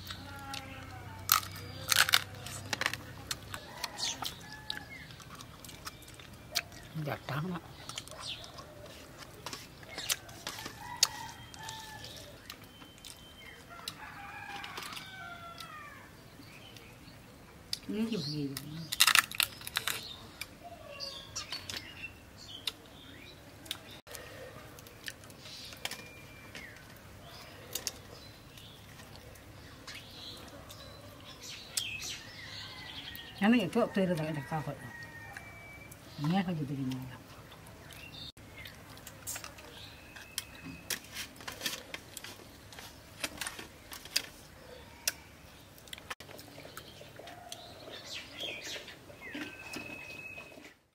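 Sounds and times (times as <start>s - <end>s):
small birds chirping: 0.0s - 50.8s
crab shell cracking: 1.2s - 6.8s, 18.9s - 20.1s.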